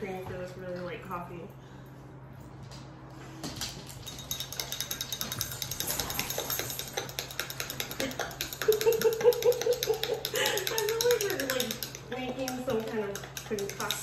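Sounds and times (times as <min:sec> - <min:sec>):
stirrer rattling in glass: 0:04.0 - 0:14.0.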